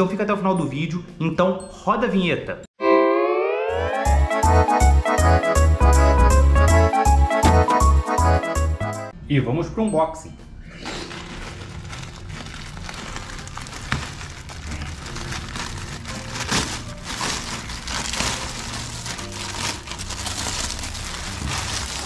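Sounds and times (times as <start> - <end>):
plastic wrapping rustling: 10.8 - 22.0
plastic mailer bag tearing: 11.0 - 22.0.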